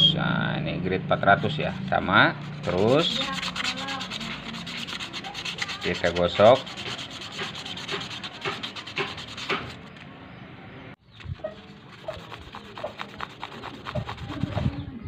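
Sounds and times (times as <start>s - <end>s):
hand sanding scratchy strokes: 1.3s - 9.9s, 11.3s - 14.8s.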